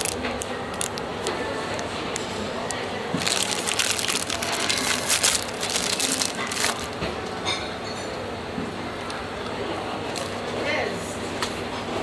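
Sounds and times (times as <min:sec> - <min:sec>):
plastic wrapper crinkling: 0:00.0 - 0:07.0.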